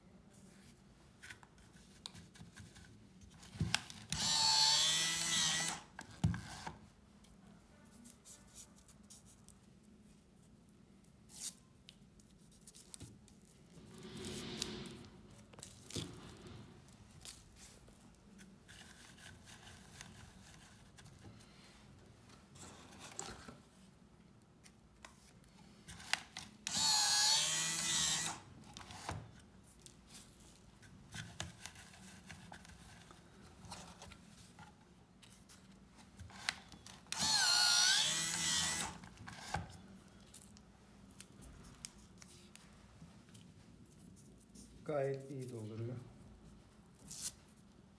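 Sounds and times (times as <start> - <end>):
machine motor whirring: 37.2 - 39.0.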